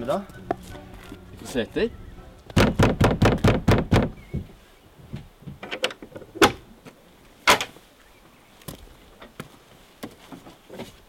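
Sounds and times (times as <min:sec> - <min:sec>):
door opening thumps: 0:02.5 - 0:06.6
fist knocking on wooden door: 0:02.6 - 0:04.5.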